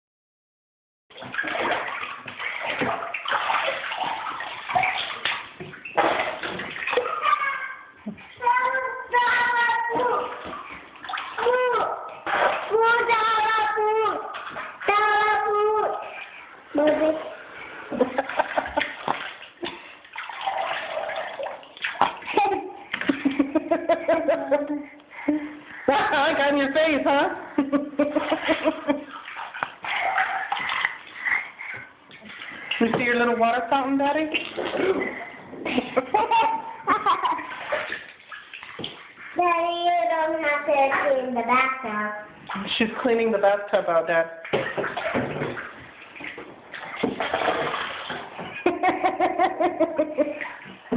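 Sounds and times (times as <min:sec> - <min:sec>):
bathwater splashing: 0:01.1 - 0:50.9
running water: 0:01.1 - 0:50.9
child's voice: 0:07.0 - 0:10.4, 0:11.4 - 0:16.1, 0:39.3 - 0:42.3.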